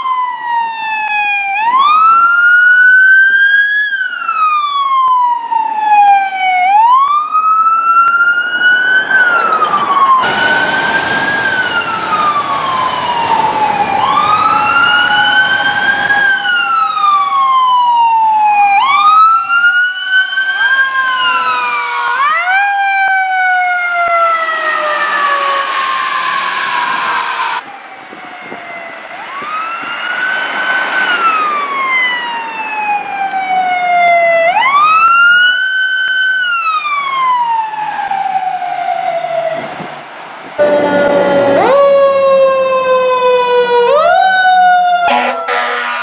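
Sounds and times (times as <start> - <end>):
emergency sirens wailing: 0.0 - 46.0
road noise: 0.0 - 46.0.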